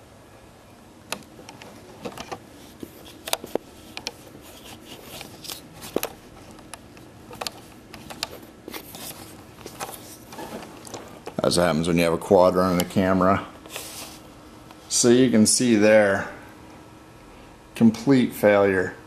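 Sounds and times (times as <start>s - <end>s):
camera handling clicks and rubbing: 3.0s - 11.0s.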